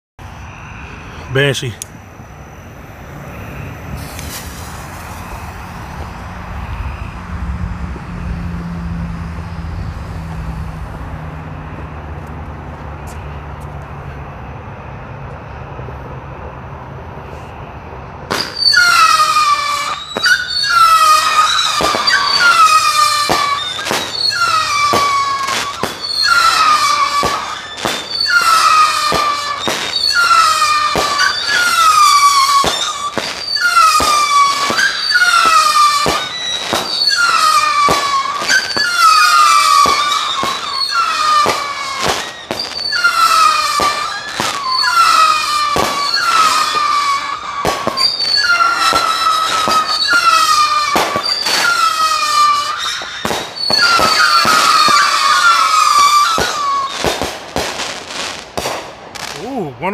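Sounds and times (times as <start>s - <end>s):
shrill falling firework whistles: 0.2s - 11.9s, 17.2s - 59.6s
firework shots popping: 1.3s - 7.1s, 18.3s - 59.7s.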